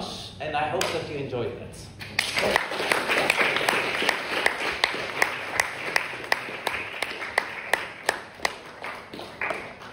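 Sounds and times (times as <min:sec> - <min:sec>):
audience applauding: 0:02.1 - 0:09.9
sharp single claps: 0:04.4 - 0:09.9.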